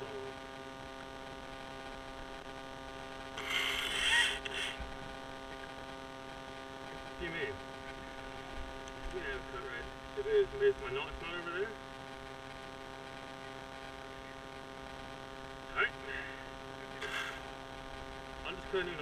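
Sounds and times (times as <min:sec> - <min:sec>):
steady engine hum: 0:13.0 - 0:19.0.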